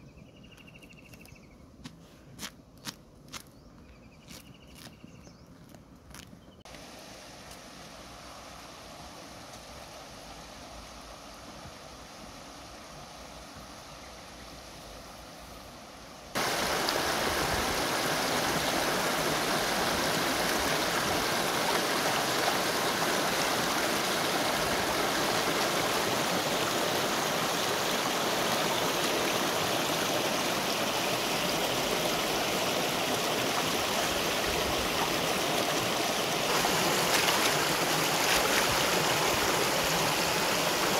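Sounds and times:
river rushing over stones: 16.3s - 40.9s.

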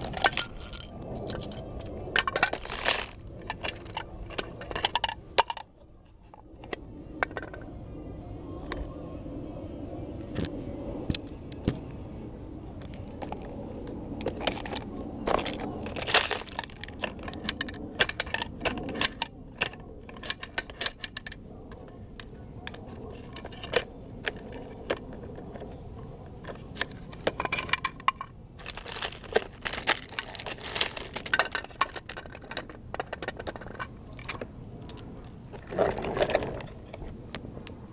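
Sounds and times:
toy truck wheels rolling on concrete: 0.0s - 5.7s, 14.2s - 37.2s
plastic clicks and clacks: 0.0s - 7.7s, 14.2s - 37.8s.

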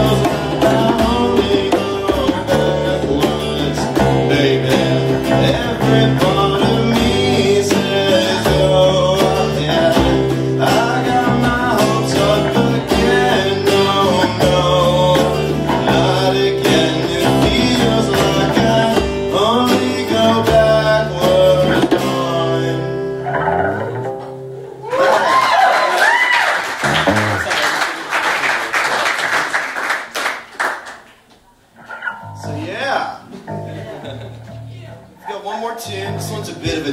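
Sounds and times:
person singing: 0.0s - 23.5s
live band with guitars: 0.0s - 28.0s, 30.4s - 36.9s.

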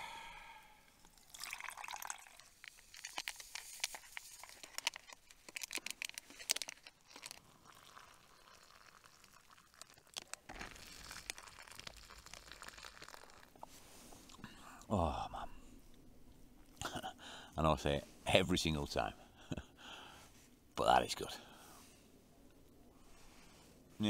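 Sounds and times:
hot water pouring into bag: 1.1s - 13.6s
plastic sachet crinkling: 2.2s - 13.7s.

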